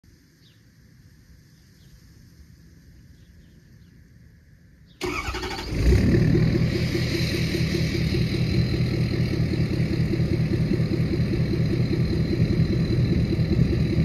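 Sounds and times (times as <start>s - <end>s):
diesel engine cranking and idling: 5.0s - 14.0s.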